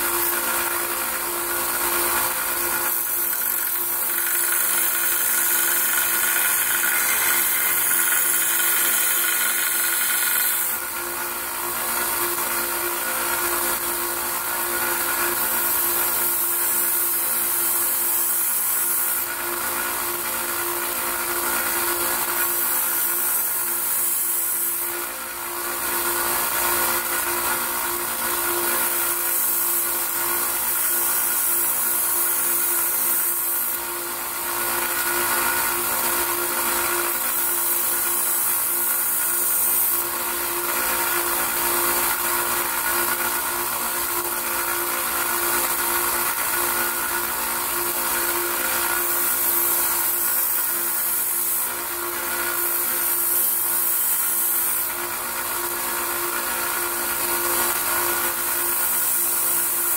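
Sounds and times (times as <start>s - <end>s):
belt sander motor hum: 0.0s - 59.9s
hatchet edge grinding on belt: 0.0s - 59.9s.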